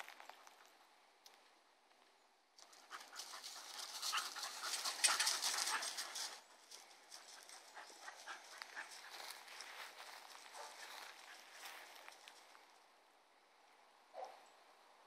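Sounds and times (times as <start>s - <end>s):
dogs panting and scuffling: 2.6s - 12.5s.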